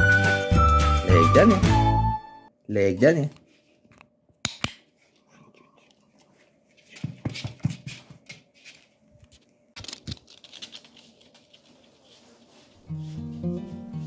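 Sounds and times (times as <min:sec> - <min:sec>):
footsteps on floor: 0:06.2 - 0:09.5, 0:11.2 - 0:14.0
dog claws clicking on floor: 0:09.8 - 0:11.9.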